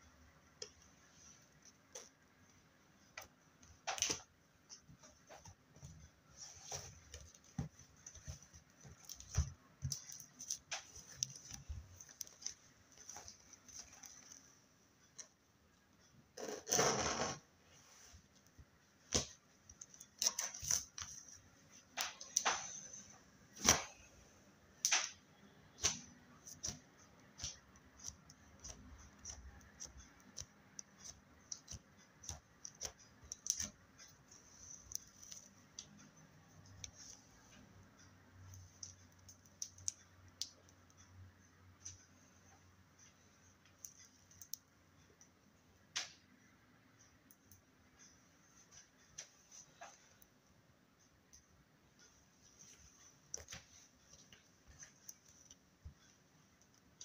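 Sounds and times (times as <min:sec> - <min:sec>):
slime squishing with sticky pops: 0:24.8 - 0:35.9
crackling squelch: 0:24.8 - 0:41.0.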